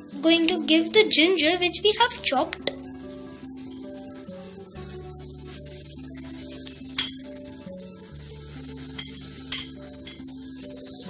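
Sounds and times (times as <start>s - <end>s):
garlic sizzling in hot oil: 0.0s - 11.0s
utensils clinking against a pan: 7.0s - 7.3s, 8.9s - 10.4s.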